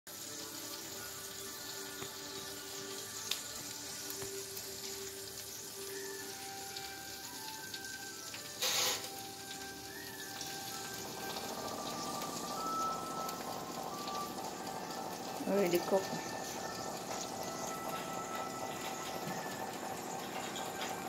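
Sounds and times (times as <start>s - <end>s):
fat sizzling in oven: 0.1s - 21.0s
soft background music: 0.1s - 21.0s.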